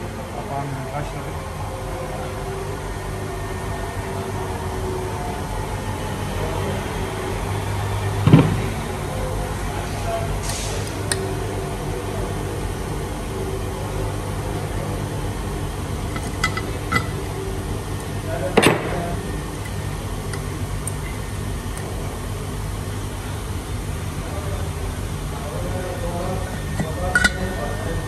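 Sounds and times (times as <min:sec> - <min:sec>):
workshop machinery hum: 0:00.0 - 0:28.0
metal clank: 0:16.1 - 0:17.2, 0:26.8 - 0:27.5.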